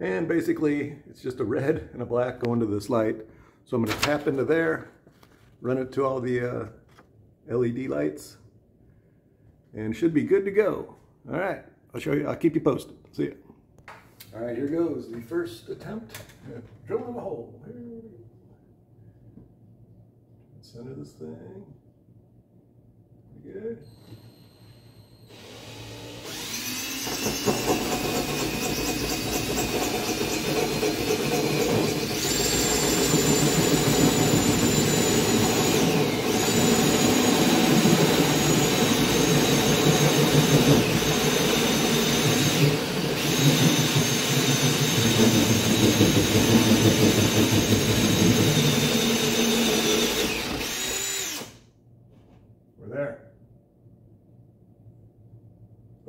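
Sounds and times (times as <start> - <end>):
drill motor whine: 23.9 - 51.6
hole saw grinding drywall: 25.3 - 51.6.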